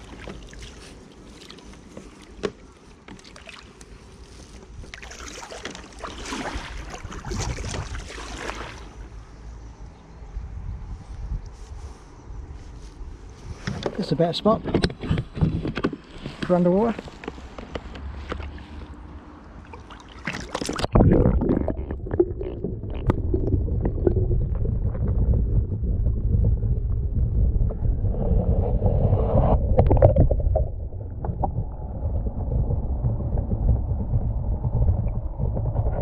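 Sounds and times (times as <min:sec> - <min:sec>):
camera splashing into water: 0:19.7 - 0:22.3
muffled underwater rumble: 0:20.8 - 0:36.0.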